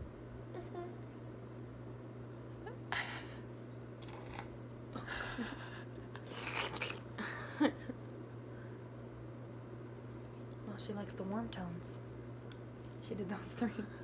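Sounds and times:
steady low hum: 0.0s - 14.0s
woman laughing breathily: 5.0s - 6.1s.

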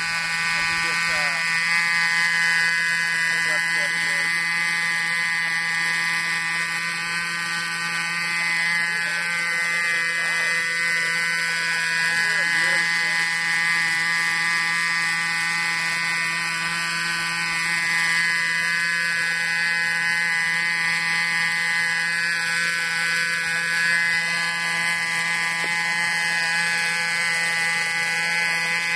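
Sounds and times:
model helicopter engine buzzing: 0.0s - 28.9s.

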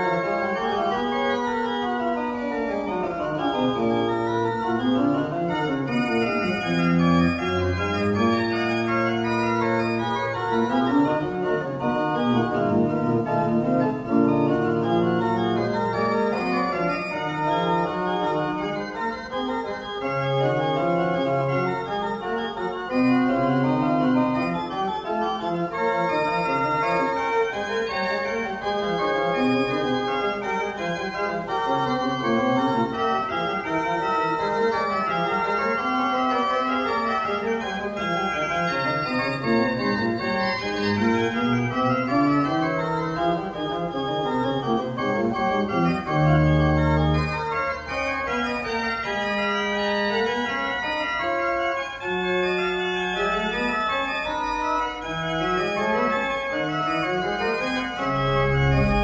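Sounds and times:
pipe organ playing: 0.0s - 59.0s.

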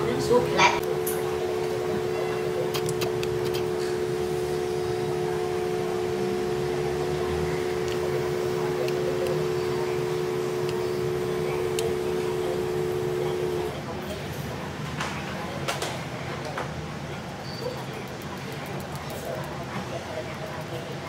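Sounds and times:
steady electrical hum: 0.0s - 16.2s.

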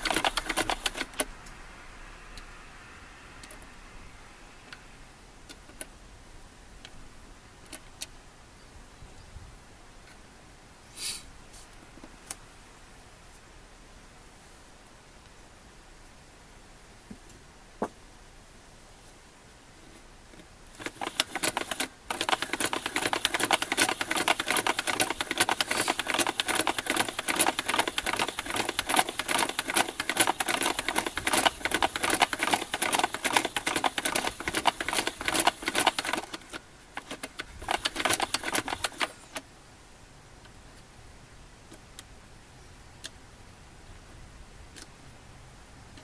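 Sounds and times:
plastic toy clattering: 0.0s - 1.2s, 20.8s - 39.3s.

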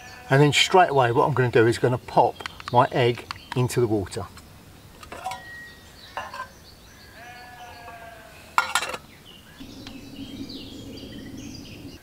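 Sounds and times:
faint bird chirps: 4.8s - 12.0s
metallic clinks of a mug: 5.1s - 6.5s.

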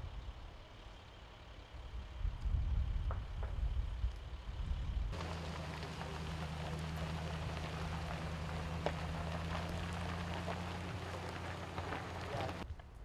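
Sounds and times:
vehicle engine idling: 5.2s - 12.6s
wildfire crackling and popping: 5.2s - 12.8s.

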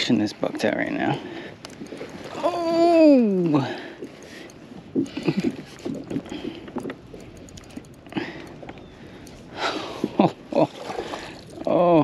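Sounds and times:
water splashing: 9.0s - 12.0s.

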